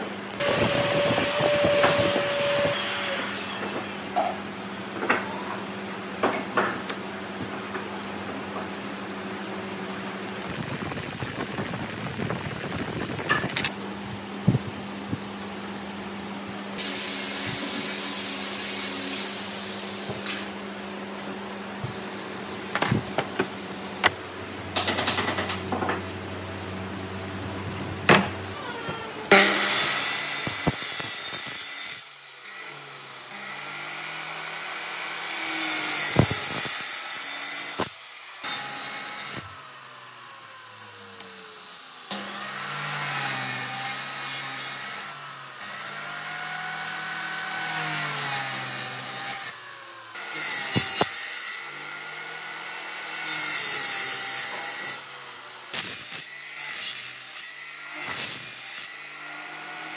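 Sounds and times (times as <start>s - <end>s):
power tool cutting wood: 0.0s - 6.7s, 16.8s - 20.6s, 28.1s - 59.9s.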